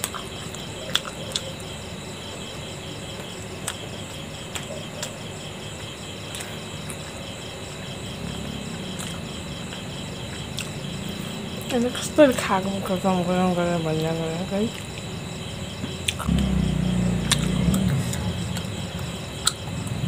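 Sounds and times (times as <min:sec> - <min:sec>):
eating clicks: 0:00.0 - 0:01.6, 0:15.8 - 0:16.5
crickets chirping: 0:00.0 - 0:20.0.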